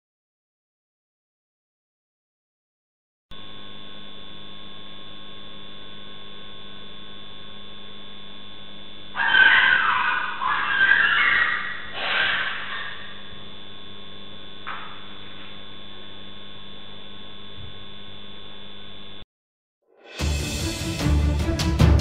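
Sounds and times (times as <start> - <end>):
electrical hum: 3.3 - 19.2
brief harsh noise: 11.6 - 13.2
music: 19.9 - 22.0.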